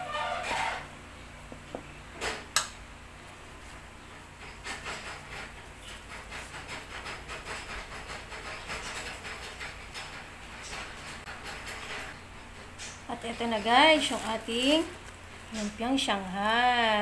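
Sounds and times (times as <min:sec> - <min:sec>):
wrapper rustling: 0:13.1 - 0:17.0.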